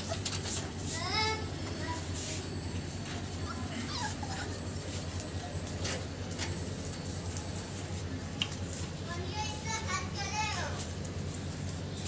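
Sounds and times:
puppies whimpering: 0.0s - 0.5s, 2.7s - 6.5s.

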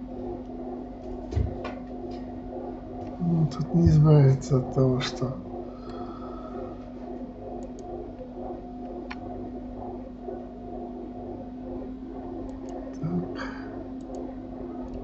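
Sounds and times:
steady low hum: 0.0s - 15.0s
computer mouse clicks: 7.6s - 9.3s, 12.4s - 13.1s, 14.0s - 15.0s.

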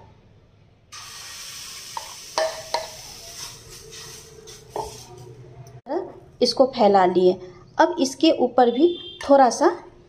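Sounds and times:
batter sizzling on hot iron: 1.0s - 5.3s.

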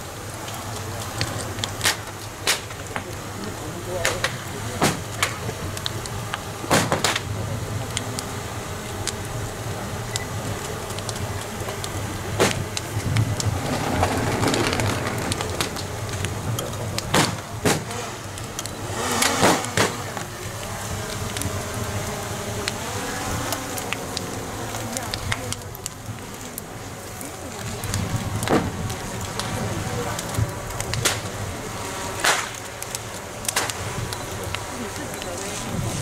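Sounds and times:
outdoor crowd hubbub: 0.0s - 36.0s
firecracker bangs: 4.1s - 5.4s, 6.7s - 7.3s, 17.0s - 18.0s, 19.1s - 20.2s, 28.5s - 28.8s, 32.2s - 32.6s.

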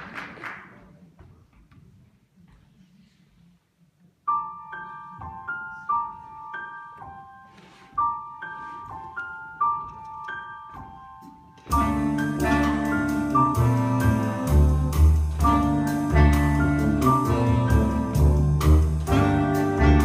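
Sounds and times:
jazz piano: 4.3s - 20.0s
jazz band playing: 11.2s - 20.0s.

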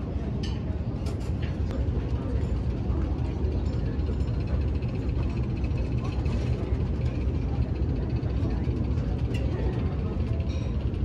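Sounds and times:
dining room background rumble: 0.4s - 11.0s.

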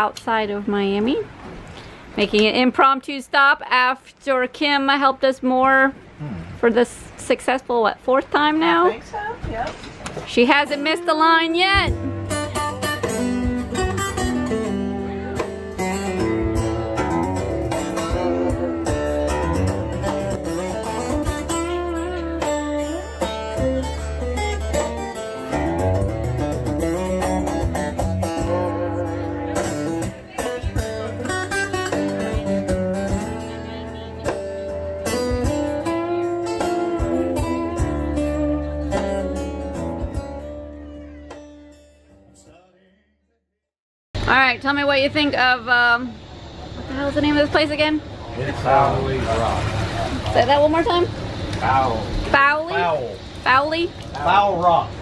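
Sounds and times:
plucked acoustic guitar music: 10.3s - 42.5s.

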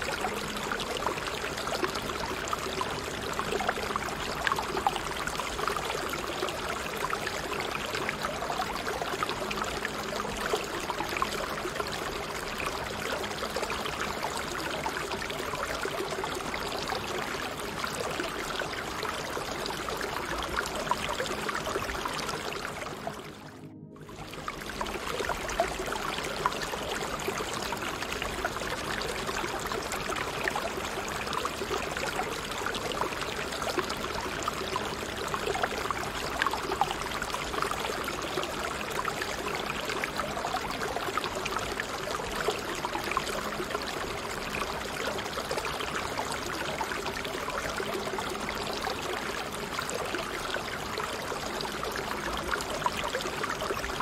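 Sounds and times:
running water: 0.0s - 54.0s.

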